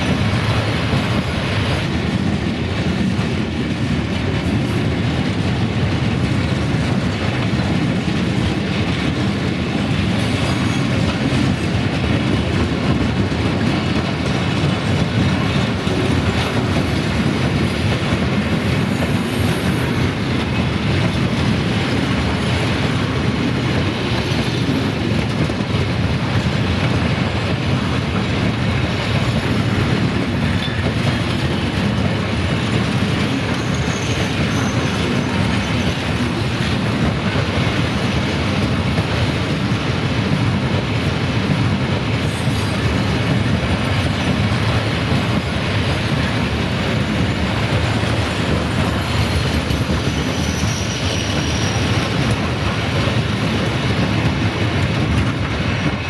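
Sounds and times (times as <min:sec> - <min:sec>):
train wheels rumbling on rails: 0:00.0 - 0:56.0
faint wheel squeals: 0:50.1 - 0:52.0.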